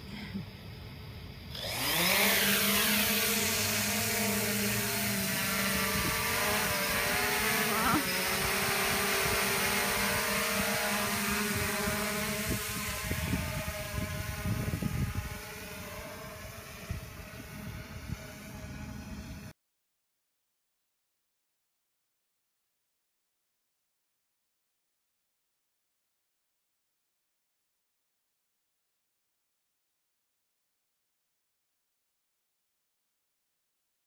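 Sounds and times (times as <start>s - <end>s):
drone propellers buzzing whine: 0.0s - 19.5s.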